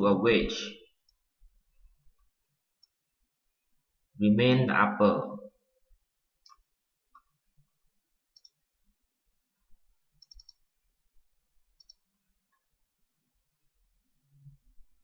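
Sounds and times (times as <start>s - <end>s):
faint computer mouse clicks: 6.4s - 7.3s, 8.3s - 8.6s, 10.2s - 10.6s, 11.8s - 12.1s.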